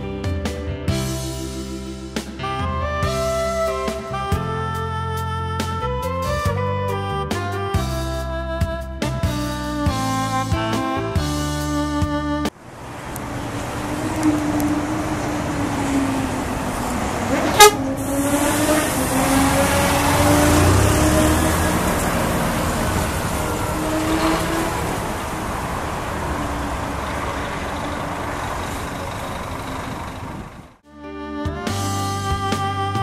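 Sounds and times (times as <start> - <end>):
coach engine hum: 1.5 - 33.0
road and tyre rush: 12.5 - 30.9.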